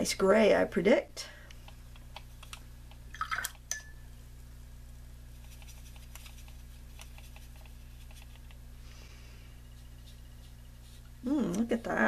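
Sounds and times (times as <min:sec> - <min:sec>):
faint scratchy brush sounds: 0:05.3 - 0:08.6, 0:09.4 - 0:12.0.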